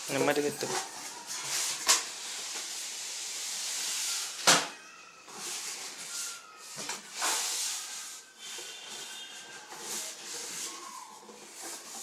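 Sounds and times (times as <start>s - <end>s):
cardboard rustling and scraping: 5.3s - 12.0s.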